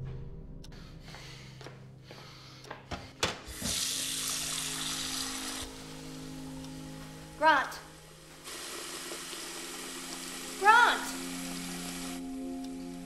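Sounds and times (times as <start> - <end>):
tap water running into a glass: 3.5 - 5.8, 8.4 - 12.3.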